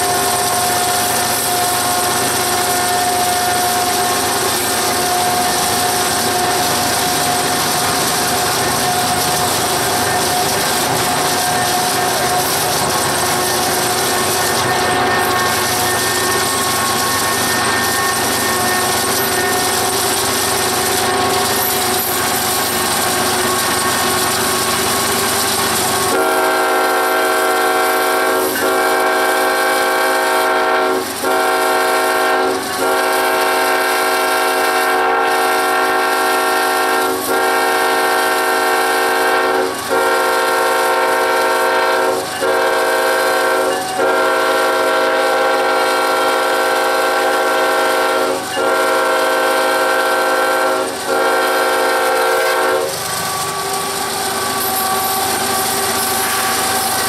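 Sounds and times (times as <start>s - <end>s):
locomotive air horn blasts: 26.1s - 53.0s.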